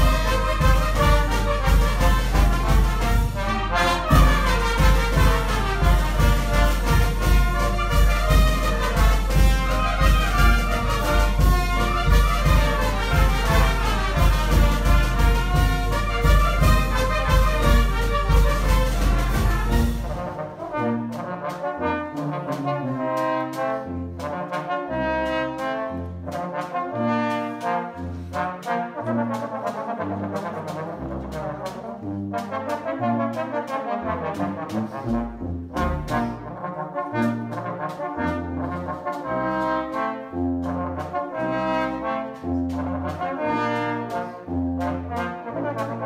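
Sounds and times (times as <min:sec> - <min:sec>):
snare and bass drum beat: 0:00.0 - 0:20.6
wind band playing: 0:00.0 - 0:46.0.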